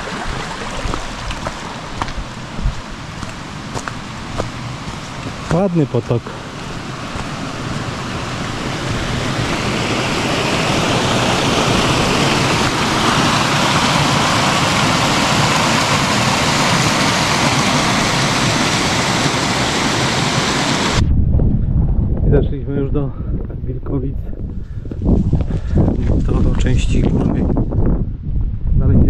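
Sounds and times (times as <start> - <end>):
mountain stream rushing: 0.0 - 21.0.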